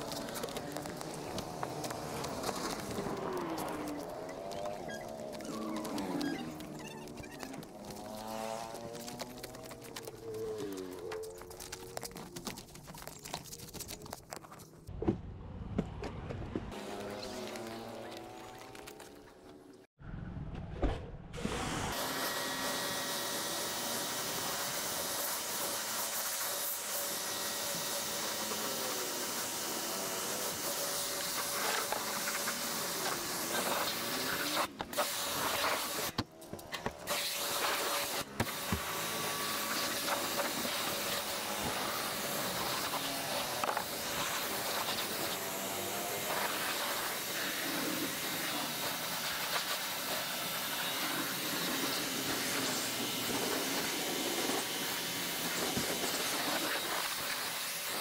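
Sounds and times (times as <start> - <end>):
pressure washer spraying water: 21.9 - 36.2, 37.0 - 58.0.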